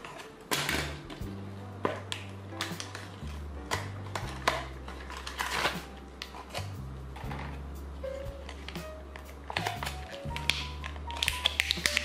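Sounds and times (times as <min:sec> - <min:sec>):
background music with bass: 0:00.6 - 0:12.0
plastic packaging crinkling: 0:01.9 - 0:07.6, 0:08.3 - 0:12.0.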